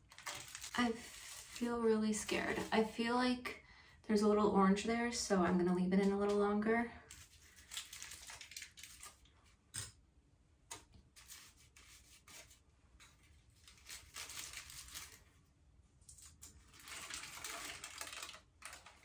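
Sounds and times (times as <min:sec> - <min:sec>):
aluminium foil crinkling: 0:00.0 - 0:02.9, 0:07.1 - 0:09.3, 0:13.1 - 0:15.4, 0:16.0 - 0:19.0.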